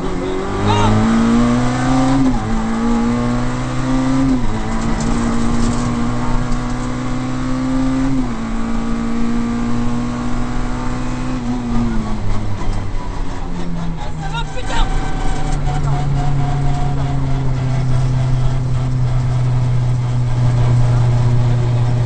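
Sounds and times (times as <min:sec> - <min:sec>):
rally car engine revving: 0:00.0 - 0:22.0.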